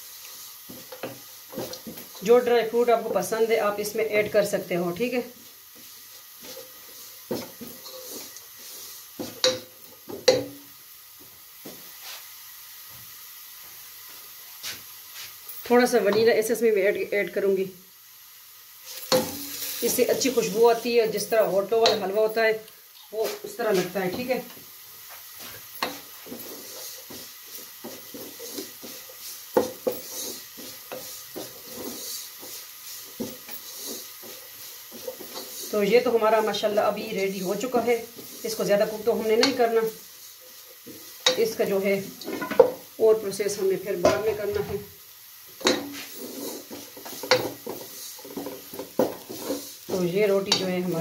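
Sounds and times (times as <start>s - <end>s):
faint steady sizzle: 0.0s - 51.0s
wooden spoon scraping a pot: 0.6s - 2.4s, 5.7s - 9.6s, 25.1s - 42.8s, 45.6s - 51.0s.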